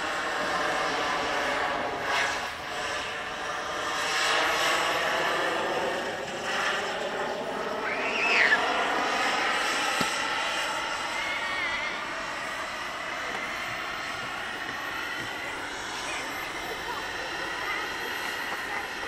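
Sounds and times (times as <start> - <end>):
model jet engine whine: 0.0 - 19.0.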